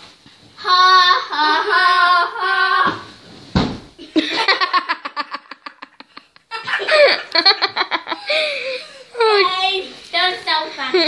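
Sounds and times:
soft thump onto bed: 3.5s - 3.9s
children laughing: 4.0s - 9.5s.

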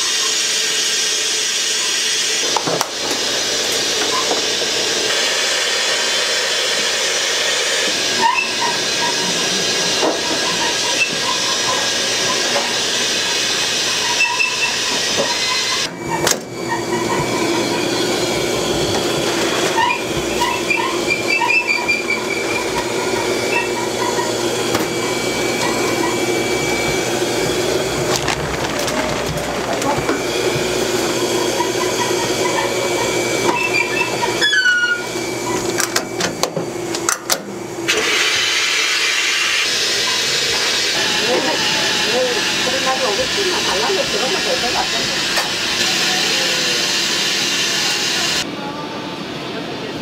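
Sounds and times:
steam hissing from steamer: 0.0s - 28.1s, 37.9s - 48.4s.

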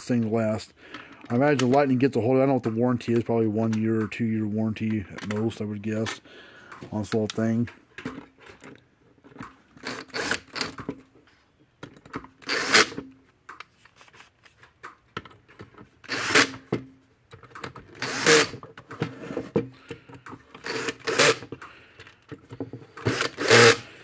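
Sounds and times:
cordless drill driving screws: 9.8s - 10.8s, 12.4s - 13.0s, 16.0s - 16.7s, 18.0s - 18.6s, 20.6s - 21.6s, 22.9s - 23.9s.

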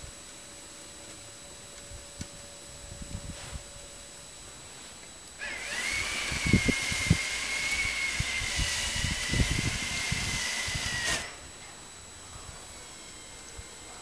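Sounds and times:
small electric motor whining: 5.4s - 11.6s, 12.2s - 14.0s.

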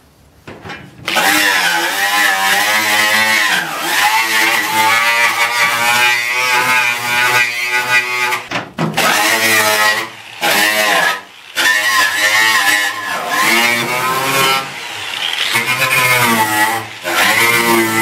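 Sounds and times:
angle grinder wire wheel whine: 1.1s - 18.0s.

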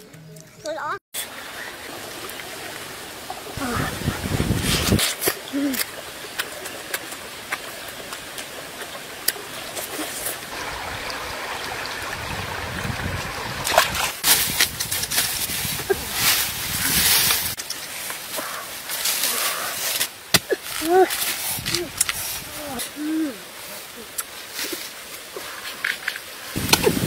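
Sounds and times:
steady water rushing: 0.6s - 27.0s
dry leaves crackling and rustling: 14.2s - 27.0s.

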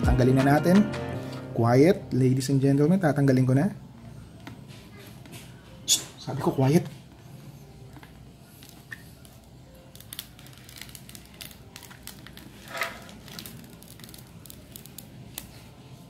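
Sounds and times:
plastic film peeling crackles: 8.0s - 16.0s.

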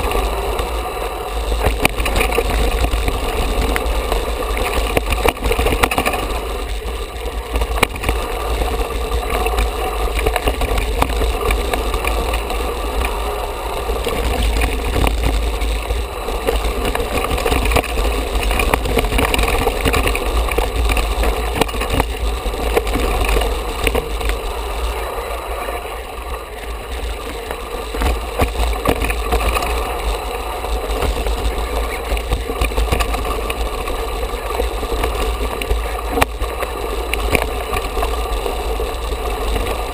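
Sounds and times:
mountain bike rattling: 0.0s - 39.9s
wind rumble on microphone: 0.0s - 39.9s.

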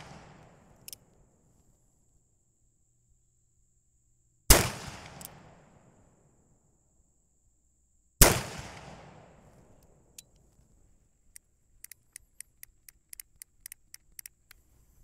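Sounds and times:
gunshot echo: 4.5s - 5.7s, 8.2s - 9.4s
revolver action clicking: 11.3s - 14.6s.

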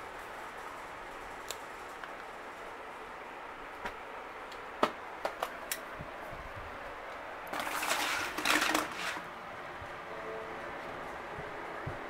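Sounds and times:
steady hiss: 0.0s - 7.6s
fabric curtain rustling: 7.5s - 9.4s.

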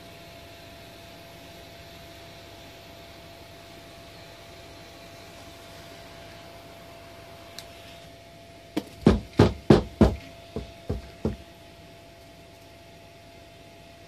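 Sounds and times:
hand beating on carpeted barrel: 8.8s - 11.5s.

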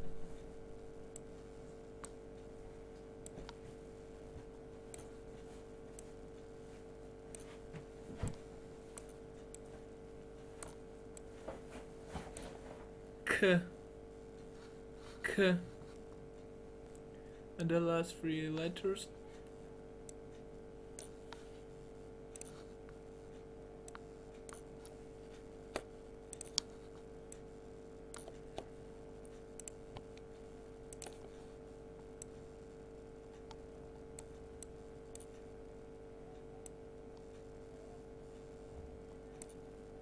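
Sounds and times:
faint electrical hum: 0.0s - 40.0s
computer mouse clicking: 22.3s - 27.5s, 28.1s - 32.5s, 34.2s - 35.5s, 38.3s - 39.6s.

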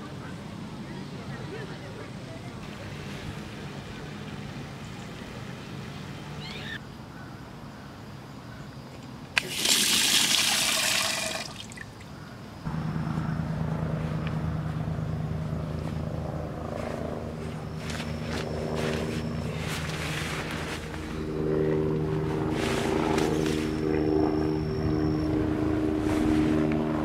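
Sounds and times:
water splashing onto drain grate: 9.4s - 11.9s
steady low hum: 11.9s - 27.0s.

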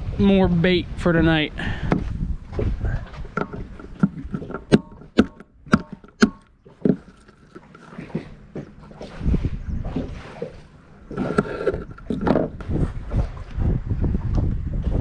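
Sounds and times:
soft scraping: 6.7s - 13.4s.

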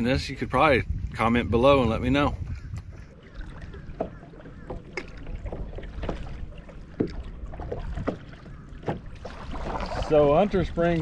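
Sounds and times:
paddle splashes and drips: 2.4s - 11.0s.

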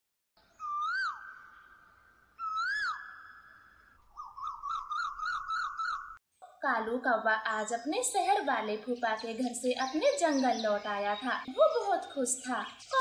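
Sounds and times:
rising and falling whistles: 0.6s - 6.2s.

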